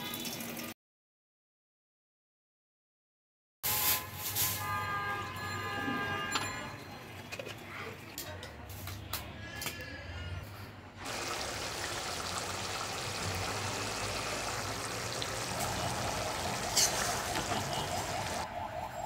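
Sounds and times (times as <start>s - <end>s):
curry bubbling in a pan: 11.0s - 18.4s.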